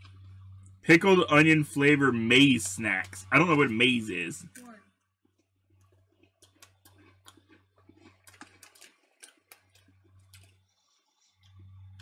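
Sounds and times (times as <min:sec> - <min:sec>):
low steady hum: 0:00.0 - 0:12.0
chewing crunchy snack: 0:05.4 - 0:11.8.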